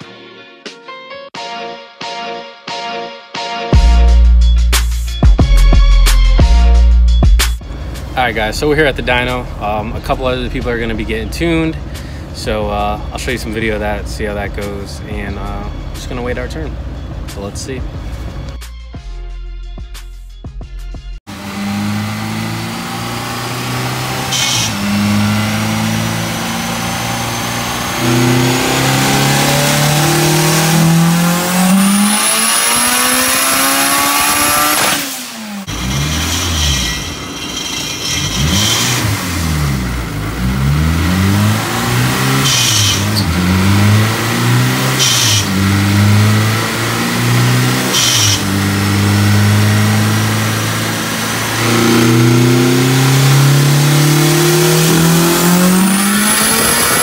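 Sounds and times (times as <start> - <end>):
turbo whistle: 47.9 - 48.4.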